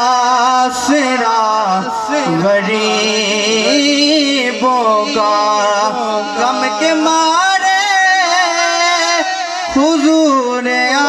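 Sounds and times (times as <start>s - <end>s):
man singing into a microphone: 0.0s - 11.0s.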